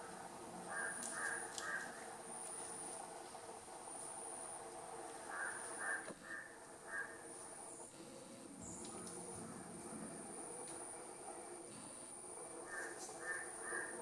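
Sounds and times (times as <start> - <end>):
bird harsh calls: 0.0 - 2.1, 5.2 - 7.4, 12.6 - 14.0.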